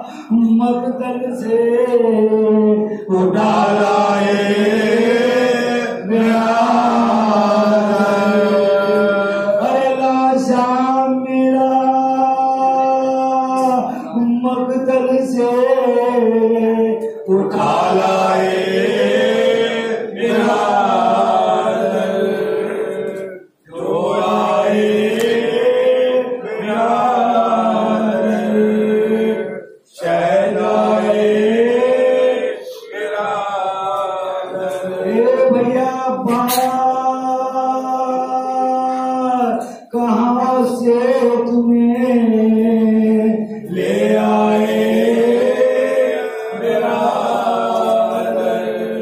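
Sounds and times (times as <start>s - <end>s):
men chanting into microphones: 0.0s - 49.0s.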